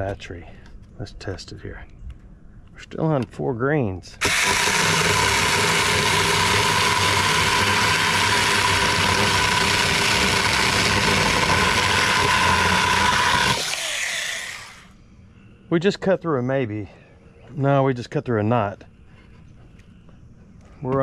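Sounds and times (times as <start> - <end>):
electric chainsaw cutting wood: 4.2 - 14.9.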